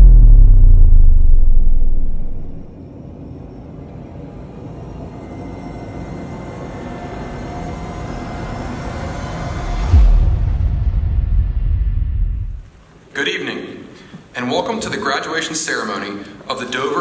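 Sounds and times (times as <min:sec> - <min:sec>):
low rumbling swell: 0:00.0 - 0:02.8.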